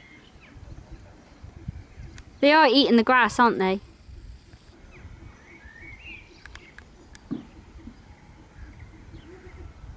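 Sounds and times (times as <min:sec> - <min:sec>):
distant birds chirping: 0:00.0 - 0:09.9
light clicks: 0:06.4 - 0:07.3.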